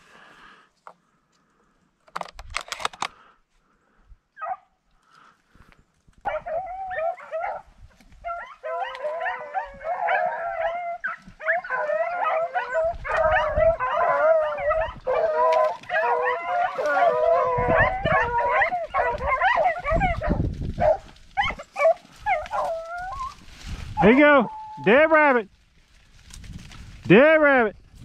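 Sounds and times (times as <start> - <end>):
dry corn stalks crackling: 5.0 - 28.0
dogs howling and baying: 6.3 - 24.9.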